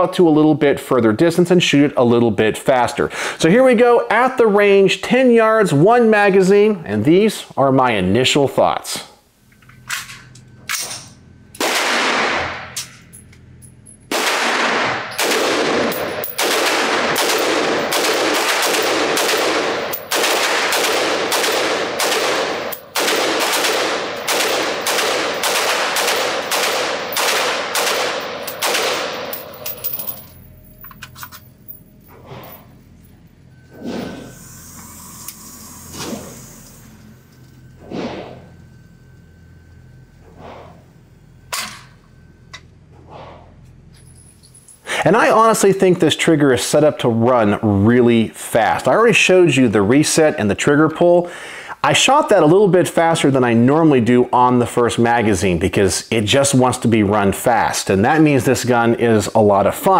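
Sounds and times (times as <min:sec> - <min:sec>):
rifle shots echoing indoors: 0:11.6 - 0:12.8, 0:14.1 - 0:30.0.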